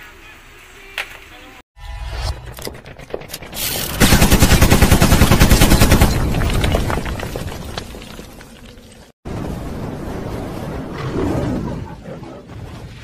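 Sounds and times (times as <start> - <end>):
machine-gun fire: 3.5 - 6.6.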